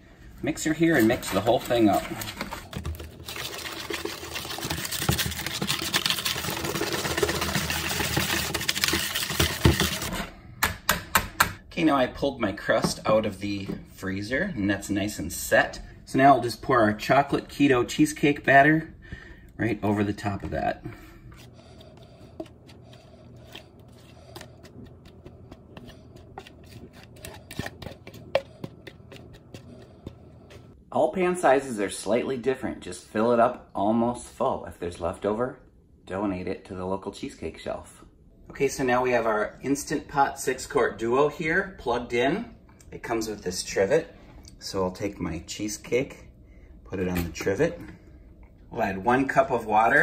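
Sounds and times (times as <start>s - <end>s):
spatula scraping plastic bowl: 0.8s - 10.3s, 21.4s - 30.7s
electric mixer beating batter: 3.2s - 10.2s.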